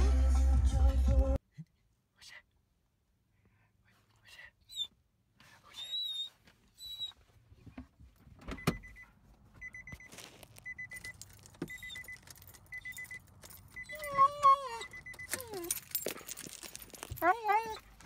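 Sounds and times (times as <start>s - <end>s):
dog whining: 5.7s - 7.2s, 13.7s - 18.0s
car warning chime beeping: 8.5s - 15.8s.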